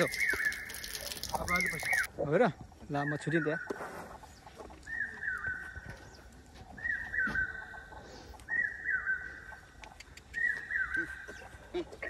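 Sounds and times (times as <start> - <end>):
bird calling: 0.0 - 2.1, 4.7 - 12.0.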